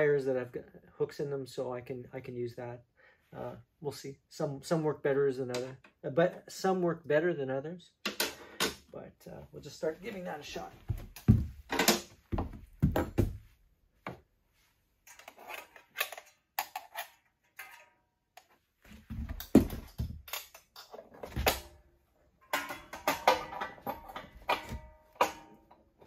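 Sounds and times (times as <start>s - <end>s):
metal clinks and rattles of tools: 15.1s - 18.0s, 19.4s - 21.7s, 22.4s - 26.0s.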